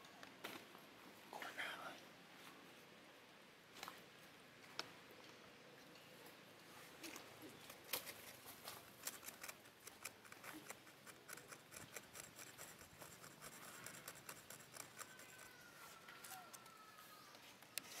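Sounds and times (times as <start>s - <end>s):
clicks and crackles on dry leaves: 7.0s - 18.0s.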